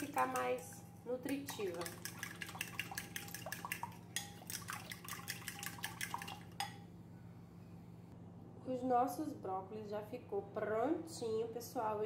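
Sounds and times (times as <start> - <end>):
whisk clicking against glass bowl: 0.0 - 6.8.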